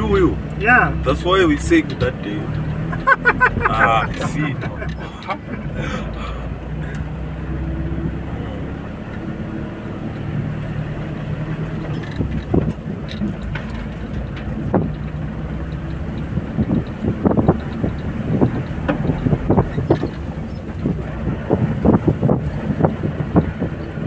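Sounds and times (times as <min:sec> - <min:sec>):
vehicle engine running: 0:00.0 - 0:24.0
knocks and rattles: 0:11.6 - 0:23.8.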